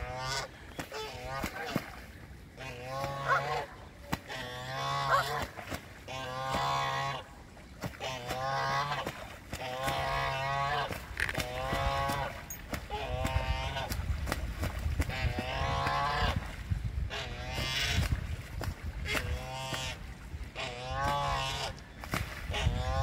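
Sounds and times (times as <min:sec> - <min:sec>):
geese honking: 0:00.0 - 0:01.9, 0:02.6 - 0:07.4, 0:08.0 - 0:12.3
water splashing: 0:00.0 - 0:23.0
wings beating on water: 0:00.0 - 0:23.0.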